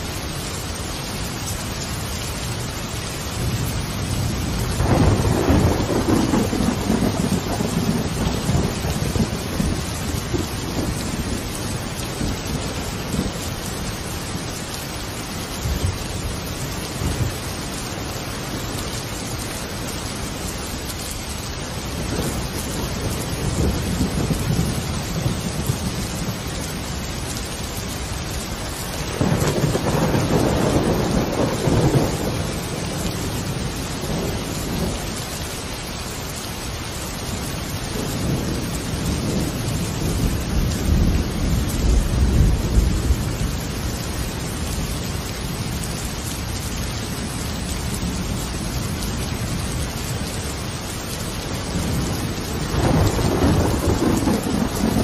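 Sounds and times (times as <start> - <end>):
steady rain: 0.0 - 55.0
rolling thunder: 3.4 - 13.4, 22.0 - 26.9, 28.9 - 35.2, 37.9 - 45.1, 51.6 - 55.0.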